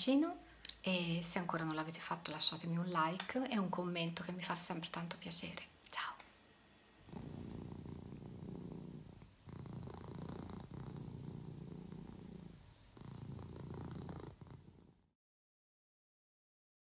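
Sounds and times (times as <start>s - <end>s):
cat purring: 7.0s - 15.1s.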